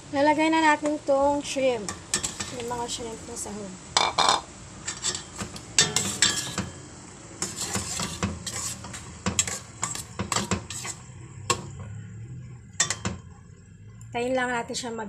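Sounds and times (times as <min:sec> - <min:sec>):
metal spoon scraping a pot: 0:01.9 - 0:03.1, 0:04.0 - 0:11.9, 0:12.7 - 0:13.4.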